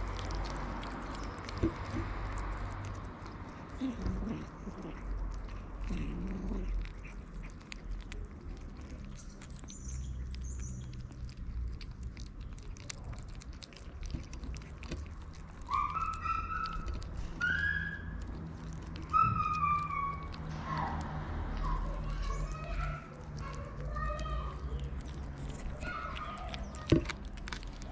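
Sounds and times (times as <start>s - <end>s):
kittens chewing and lapping: 0.0s - 27.9s
kitten meowing: 18.9s - 21.0s.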